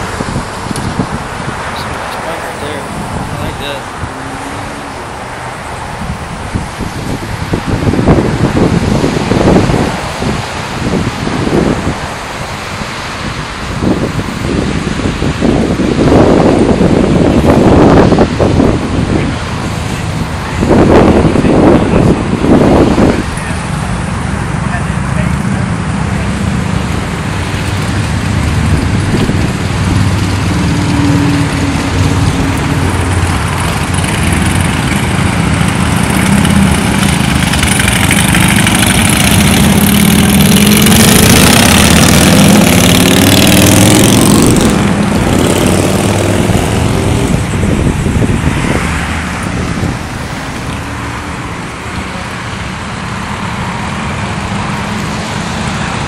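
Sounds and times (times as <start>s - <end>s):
motorcycle engines running: 0.0s - 56.0s
motorcycles accelerating away: 24.5s - 51.4s.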